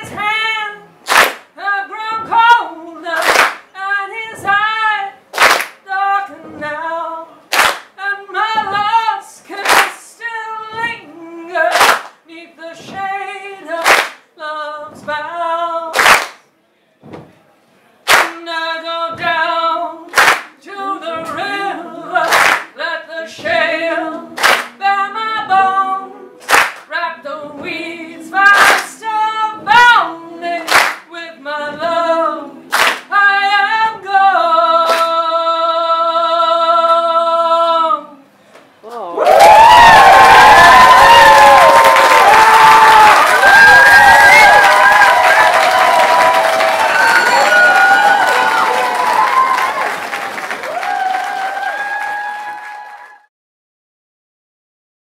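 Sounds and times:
woman singing a cappella: 0.0s - 1.0s, 1.6s - 5.2s, 5.8s - 16.0s, 18.2s - 39.1s
sharp handclaps: 1.1s - 1.5s, 3.2s - 3.7s, 5.3s - 5.8s, 7.5s - 8.0s, 9.6s - 10.0s, 11.7s - 12.2s, 13.8s - 14.2s, 16.0s - 16.4s, 18.1s - 18.4s, 20.1s - 20.5s, 22.3s - 22.7s, 24.4s - 24.8s, 26.4s - 26.9s, 28.6s - 28.9s, 30.7s - 31.1s, 32.7s - 33.1s, 34.9s - 35.1s, 39.3s - 53.2s
several voices singing together: 18.2s - 38.0s.

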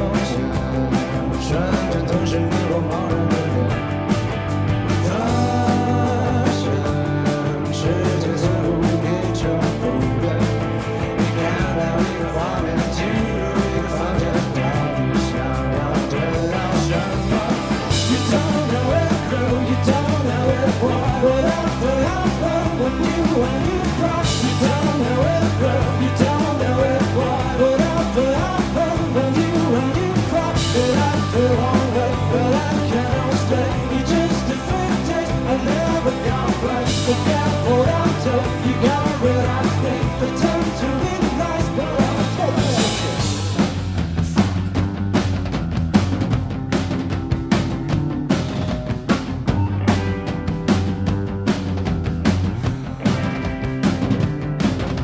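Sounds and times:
person singing: 0.0s - 3.9s, 4.9s - 43.4s
rock band playing live: 0.0s - 55.0s.

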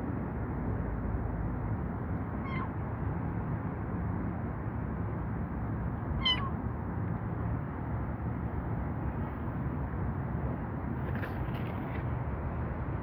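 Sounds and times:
kitten mewing: 6.2s - 6.6s.

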